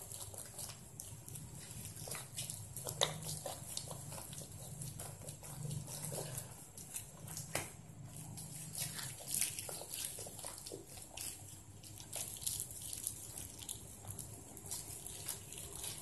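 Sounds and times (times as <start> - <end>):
plastic bag crinkling: 8.2 - 16.0.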